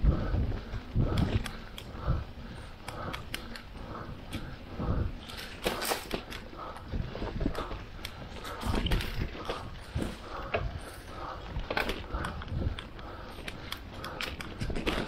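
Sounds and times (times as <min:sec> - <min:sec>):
light clicks: 0:02.8 - 0:04.6, 0:11.7 - 0:15.0
footsteps walking: 0:05.3 - 0:15.0.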